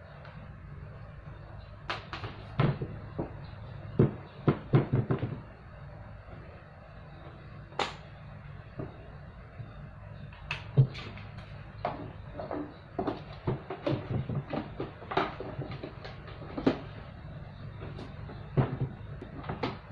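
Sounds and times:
plastic mop and bucket knocking: 0:01.9 - 0:03.4, 0:04.0 - 0:05.4, 0:11.8 - 0:16.9, 0:17.8 - 0:19.9.

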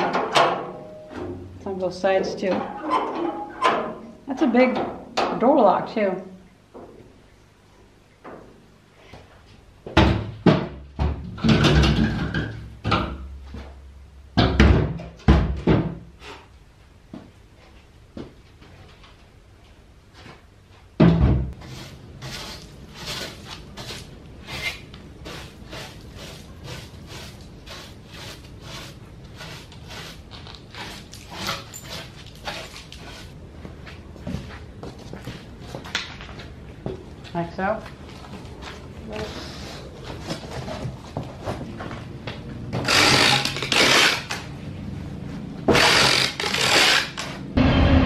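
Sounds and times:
metal door banging and clanking: 0:00.0 - 0:01.4, 0:02.4 - 0:04.1, 0:10.0 - 0:13.2
brush scrubbing glass: 0:21.6 - 0:33.4.

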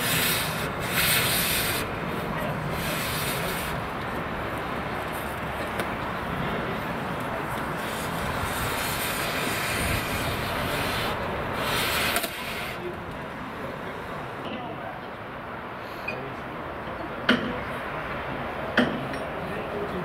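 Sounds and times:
cutting torch hissing: 0:00.0 - 0:04.5, 0:07.5 - 0:13.0.

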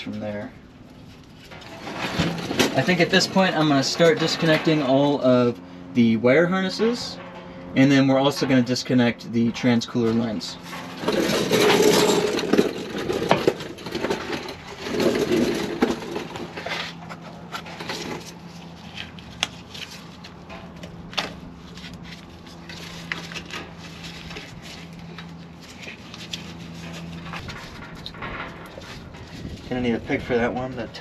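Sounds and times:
rustling and scraping: 0:00.0 - 0:31.0.

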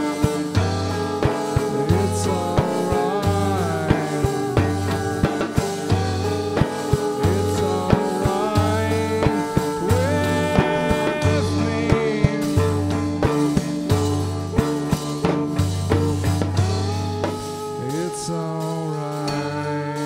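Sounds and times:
man singing: 0:00.0 - 0:14.9, 0:16.8 - 0:20.0
pulsing bass line: 0:00.0 - 0:18.5
electric guitars: 0:00.0 - 0:20.0
steady drum beat: 0:00.0 - 0:20.0
woman singing: 0:00.9 - 0:13.0.

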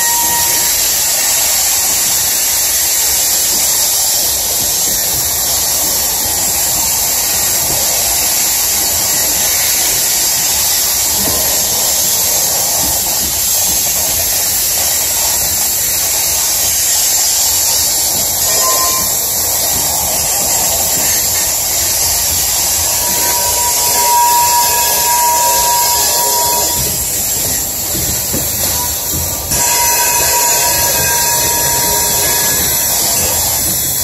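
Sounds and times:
steel wheels hissing on rail: 0:00.0 - 0:34.0.

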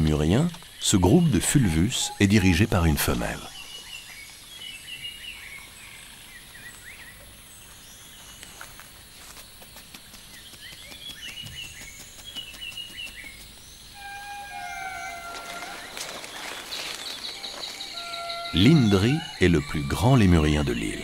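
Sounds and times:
faint high insect whine: 0:00.0 - 0:21.0
bird chirps and calls: 0:10.3 - 0:21.0
whistled call falling in pitch: 0:14.0 - 0:16.3.

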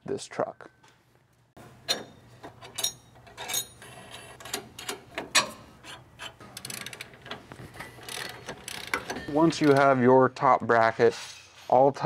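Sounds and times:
metal tools clinking and scraping: 0:01.8 - 0:10.1.

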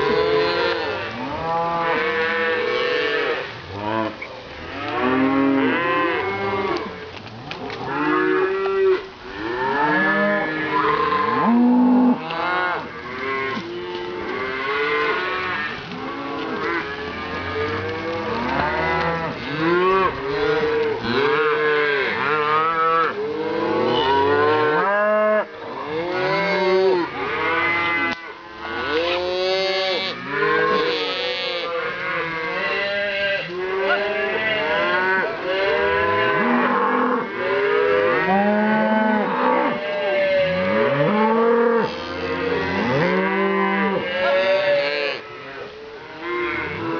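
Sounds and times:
cows and calves mooing: 0:00.0 - 0:46.9.

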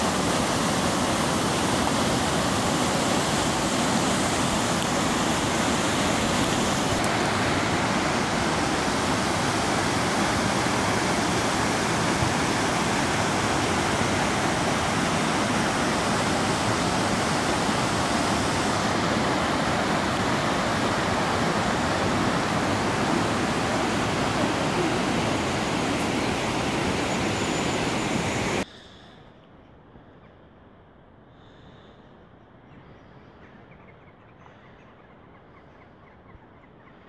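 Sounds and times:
river rapids rushing over rocks: 0:00.0 - 0:28.6.

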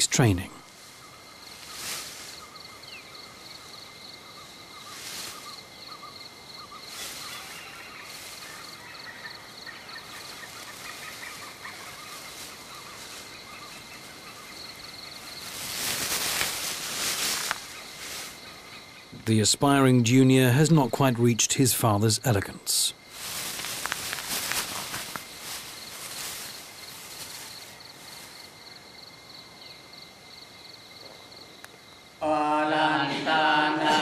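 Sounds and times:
leaves and branches rustling: 0:00.0 - 0:20.2, 0:22.3 - 0:30.0
birds chirping: 0:00.0 - 0:23.1
insect trill: 0:00.0 - 0:34.0.

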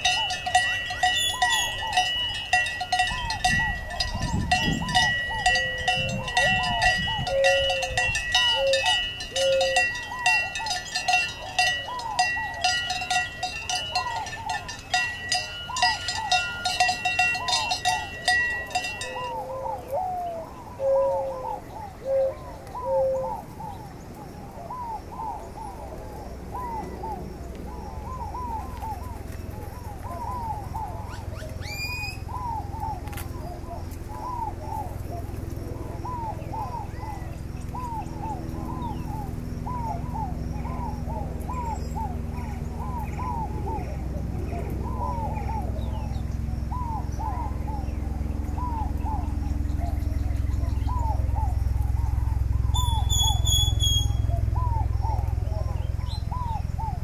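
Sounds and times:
cowbells clanking: 0:00.0 - 0:19.5
birds chirping: 0:00.0 - 0:57.0
low steady rumble: 0:00.0 - 0:57.0
rising whistle: 0:52.6 - 0:54.8.

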